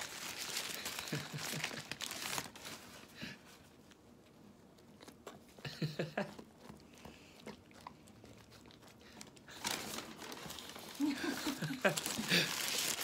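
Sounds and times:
dog chewing wetly: 4.4 - 9.6.

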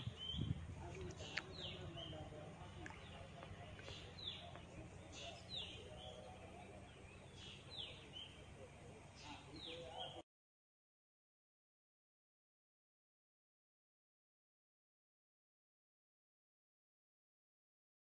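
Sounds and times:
faint low outdoor rumble: 0.0 - 10.2.

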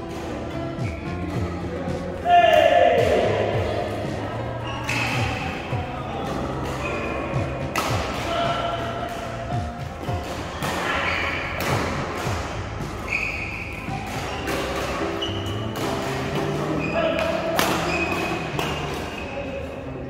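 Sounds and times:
shoes squeaking on court floor: 0.0 - 2.0, 4.6 - 8.0, 8.9 - 20.0
racket striking shuttlecock: 7.7 - 8.3, 13.8 - 19.2.

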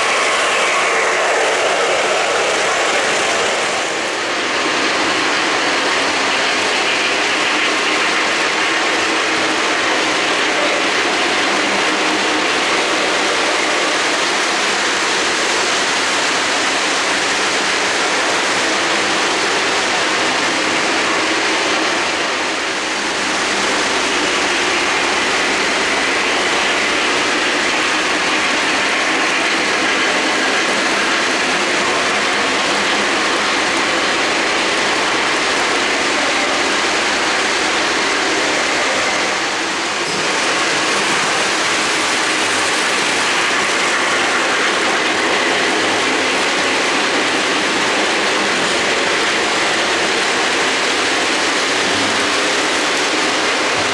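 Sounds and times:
model train wheels on track: 0.0 - 53.9.

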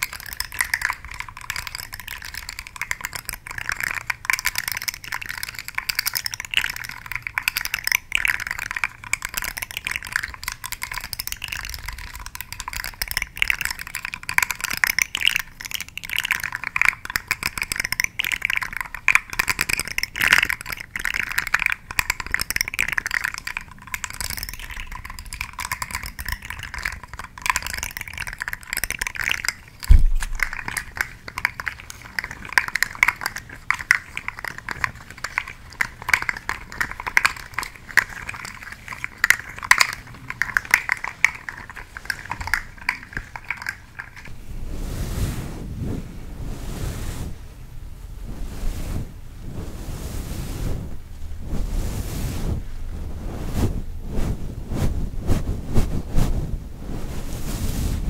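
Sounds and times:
crackling and scratching object: 0.0 - 47.4
low thump: 29.9 - 30.2.

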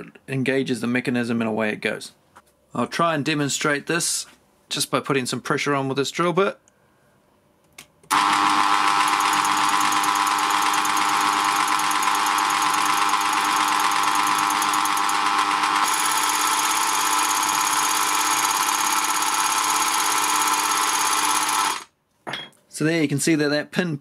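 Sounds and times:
rotary hammer drill rattling: 8.1 - 21.9.

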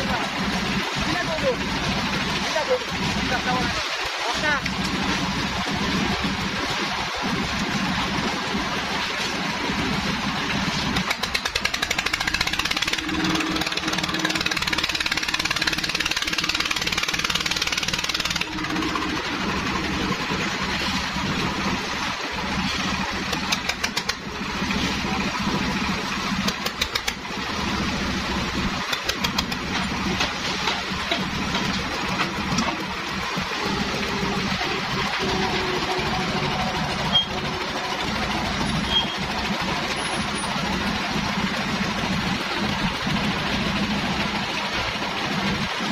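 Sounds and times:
concrete mixer engine running: 0.0 - 45.9
rapid clattering: 10.9 - 19.8.

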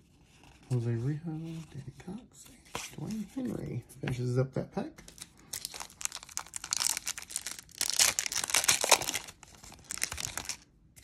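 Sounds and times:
foil wrapper tearing and crinkling: 5.1 - 10.6.

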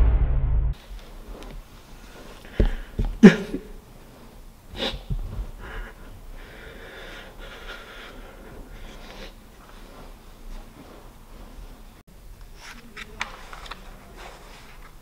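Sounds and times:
boy breathing heavily and sniffling: 1.4 - 11.6.

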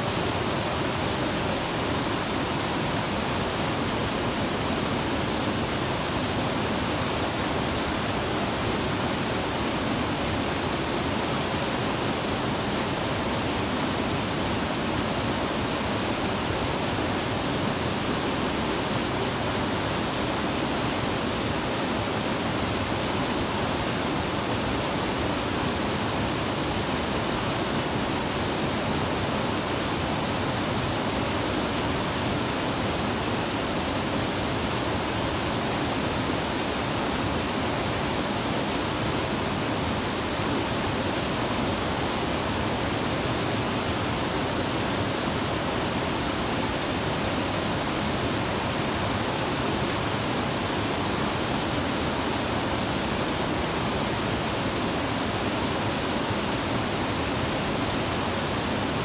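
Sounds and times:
waterfall over rocks: 0.0 - 59.0.

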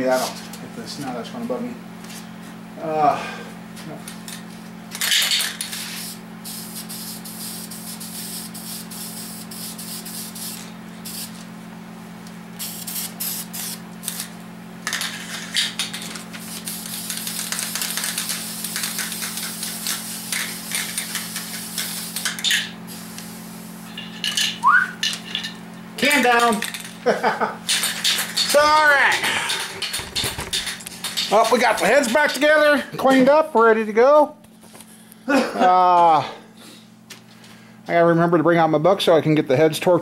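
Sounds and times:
aerosol spray can hissing: 5.7 - 11.4, 12.6 - 14.3, 16.4 - 23.8.

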